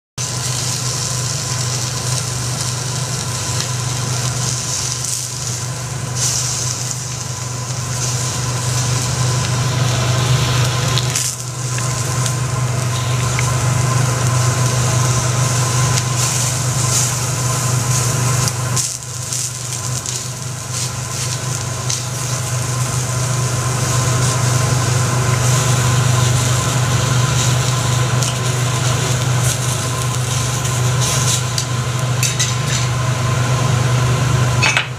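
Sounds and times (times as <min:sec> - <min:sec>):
meat sizzling on a griddle: 0:00.2 - 0:34.0
low hum: 0:00.3 - 0:34.9
spatula scraping hot plate: 0:07.8 - 0:33.0.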